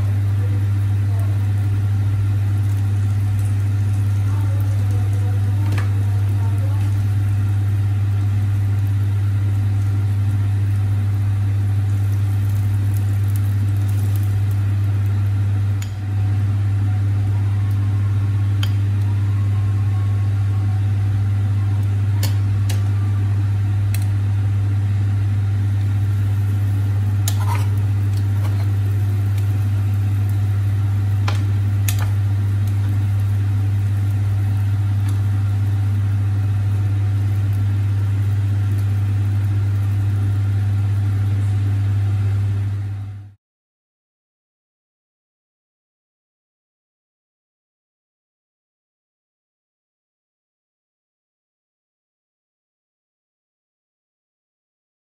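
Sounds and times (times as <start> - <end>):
steady low hum: 0.0 - 43.4
spatula and spoon clicking and scraping: 27.2 - 29.5, 31.2 - 32.9.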